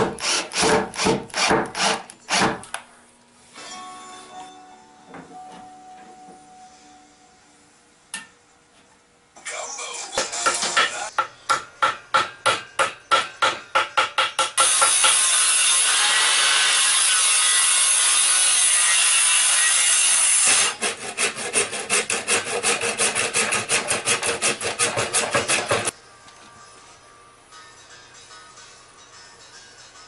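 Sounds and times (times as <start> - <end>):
circular saw cutting a log: 14.6 - 25.9
hand saw cutting a log: 14.6 - 25.9.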